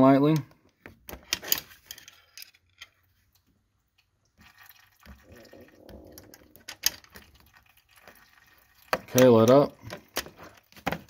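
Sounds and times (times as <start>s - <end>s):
faint wet flowing fluid: 3.2s - 9.2s.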